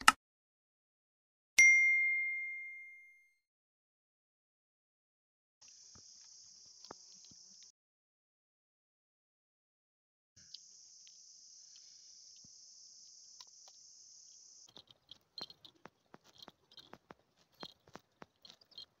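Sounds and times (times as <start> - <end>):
high buzzing of insects: 5.6 - 7.7, 10.4 - 18.9.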